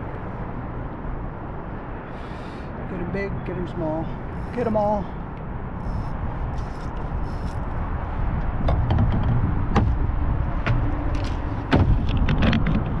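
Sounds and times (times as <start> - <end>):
wind and water rumble: 0.0 - 13.0
sharp clicks and knocks: 8.4 - 10.0, 10.6 - 13.0.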